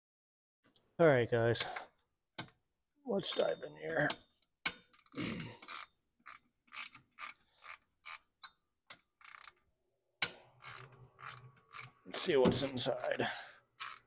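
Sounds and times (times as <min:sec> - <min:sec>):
ratchet wrench clicking: 0:05.0 - 0:08.6, 0:09.2 - 0:09.6, 0:10.2 - 0:12.0, 0:13.8 - 0:14.0.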